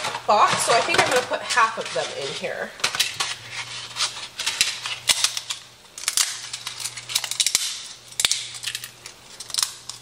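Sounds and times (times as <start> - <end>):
dry noodles snapping: 5.0 - 10.0.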